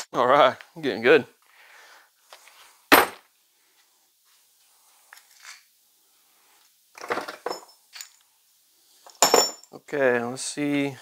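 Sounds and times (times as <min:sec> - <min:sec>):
metal tools clattering on workbench: 0:07.0 - 0:08.2, 0:09.1 - 0:09.8.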